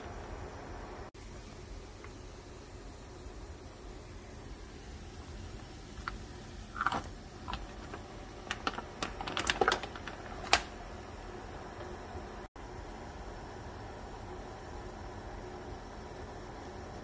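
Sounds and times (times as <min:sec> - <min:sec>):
faint steady hiss: 0:00.0 - 0:17.0
plastic bag crinkling: 0:05.9 - 0:10.8
mussel shells clicking: 0:06.0 - 0:10.7.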